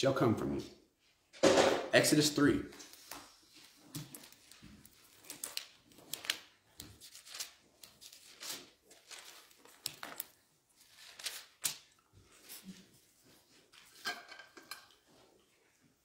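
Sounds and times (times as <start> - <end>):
book pages rustling: 2.8 - 14.0.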